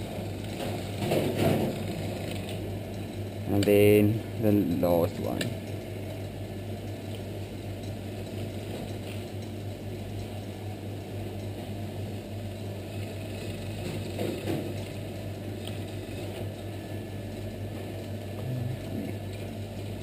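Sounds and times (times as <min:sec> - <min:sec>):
steady low hum: 0:00.0 - 0:20.0
pasta machine rollers turning: 0:11.3 - 0:20.0.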